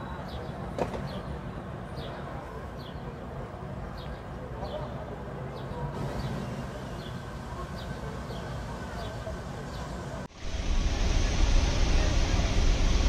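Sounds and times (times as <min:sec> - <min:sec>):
street background noise: 0:00.0 - 0:13.0
low rumble and hiss: 0:06.0 - 0:13.0.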